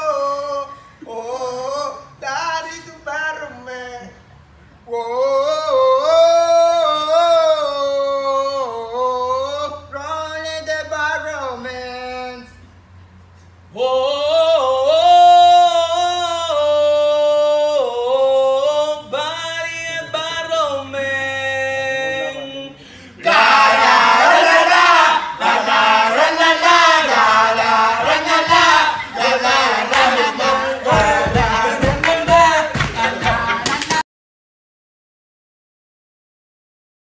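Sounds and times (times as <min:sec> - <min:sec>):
group of men singing: 0:13.8 - 0:34.0.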